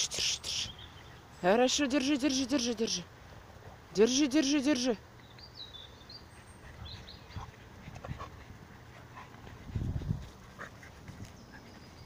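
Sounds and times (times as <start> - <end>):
dogs panting: 6.2 - 12.0.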